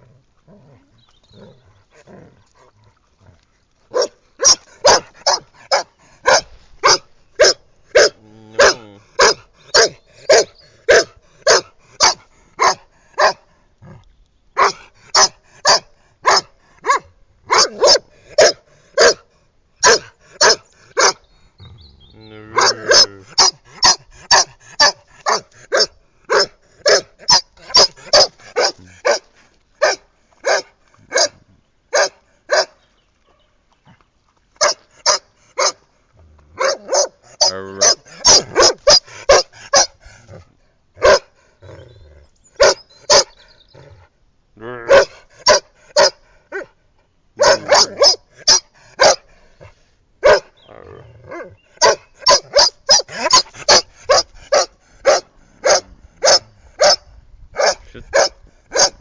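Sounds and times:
dog barking: 3.9 - 13.4, 14.6 - 19.2, 19.8 - 21.2, 22.6 - 32.8, 34.6 - 35.8, 36.6 - 39.9, 41.0 - 41.3, 42.6 - 43.3, 44.8 - 46.7, 47.4 - 49.2, 50.2 - 50.5, 51.4 - 59.0.

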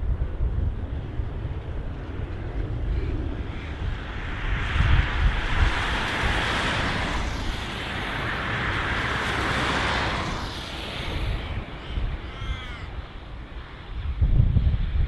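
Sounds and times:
jet landing roll on wet runway: 0.0 - 15.0
low wind rumble: 0.0 - 15.0
bird calling: 2.8 - 3.9, 10.7 - 13.9.

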